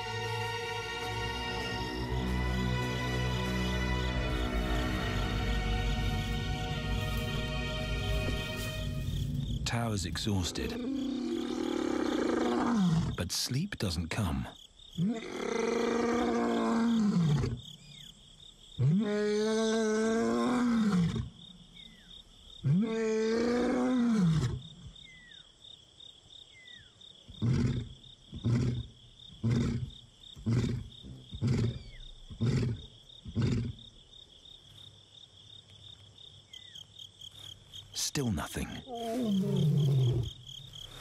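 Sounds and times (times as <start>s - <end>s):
lion grunting: 10.0s - 13.3s, 27.3s - 33.8s, 38.4s - 41.0s
lion roaring: 10.4s - 13.2s, 15.0s - 17.6s, 18.8s - 21.3s, 22.6s - 24.6s, 38.9s - 40.5s.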